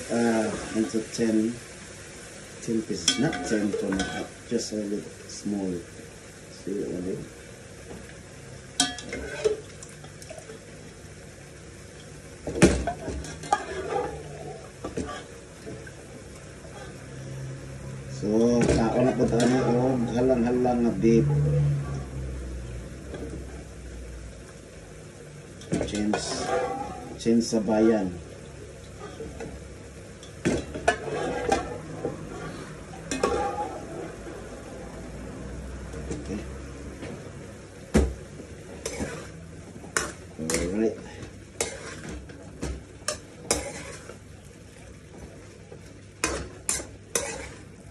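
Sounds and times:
frying sizzle: 0.0s - 47.9s
metal utensil scraping a pan: 3.0s - 4.3s, 8.8s - 9.6s, 12.9s - 15.8s, 16.6s - 17.0s, 18.2s - 22.0s, 25.6s - 28.0s, 28.9s - 29.6s, 30.2s - 34.4s, 38.7s - 44.2s, 46.2s - 47.9s.

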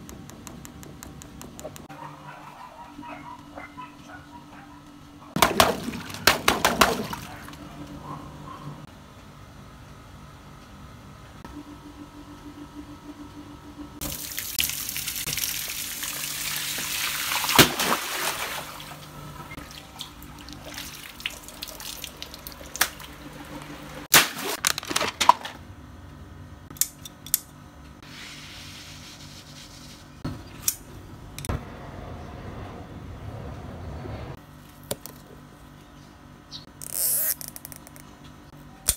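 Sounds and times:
hose water splashing on toy: 14.0s - 18.9s
paper packet crinkling: 24.4s - 25.6s.

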